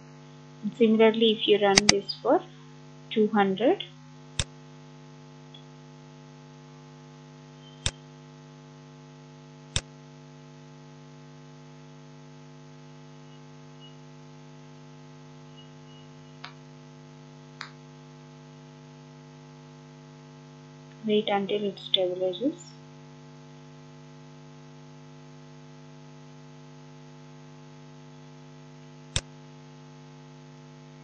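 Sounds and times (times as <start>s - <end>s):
electrical hum: 0.0s - 23.2s
computer mouse clicks: 1.7s - 2.0s.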